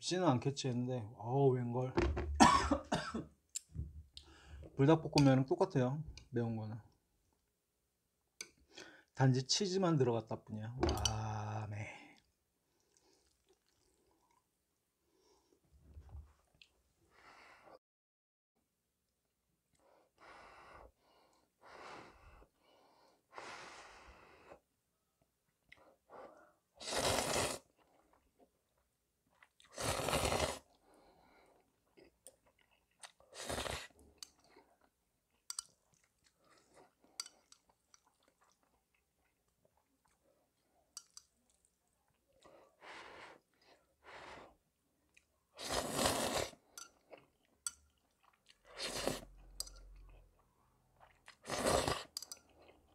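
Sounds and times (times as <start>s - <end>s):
chewing: 12.2s - 14.5s, 34.2s - 42.6s, 46.8s - 52.9s
person slurping noodles: 26.8s - 27.8s, 29.6s - 30.8s, 33.2s - 34.0s, 45.5s - 46.8s, 48.6s - 49.4s, 51.2s - 52.3s.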